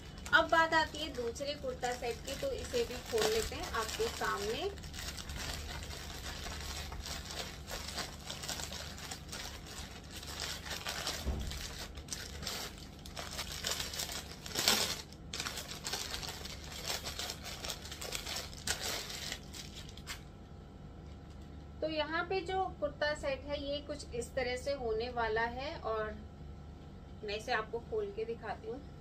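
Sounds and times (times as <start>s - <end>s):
plastic packaging crinkling and tearing: 0.0s - 20.3s.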